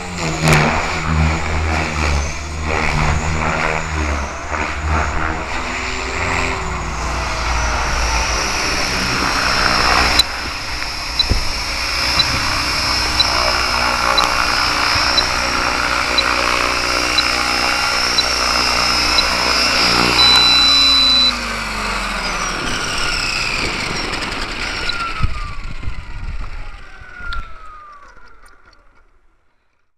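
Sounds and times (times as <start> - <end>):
rc helicopter rotors whining: 0.0 - 29.2
high steady tone: 4.2 - 21.6.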